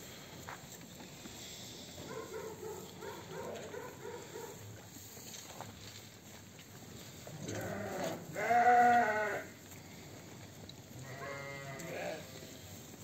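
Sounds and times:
sheep bleating: 0:07.3 - 0:09.6, 0:11.0 - 0:12.5.

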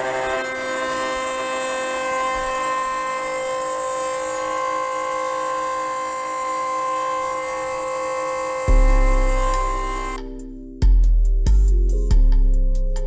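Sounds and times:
cnc router spindle whine: 0:00.0 - 0:10.2.

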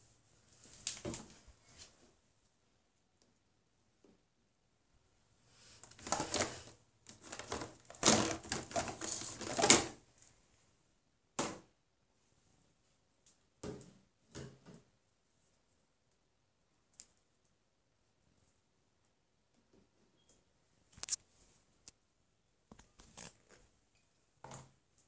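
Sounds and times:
plastic bottles clattering: 0:05.8 - 0:10.0.

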